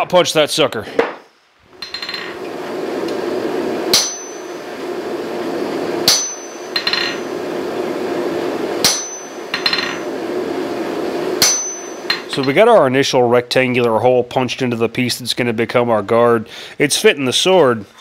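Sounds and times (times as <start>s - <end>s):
hammer striking metal punch: 1.8s - 2.3s, 3.9s - 4.6s, 6.0s - 7.3s, 8.8s - 10.0s, 11.4s - 12.6s.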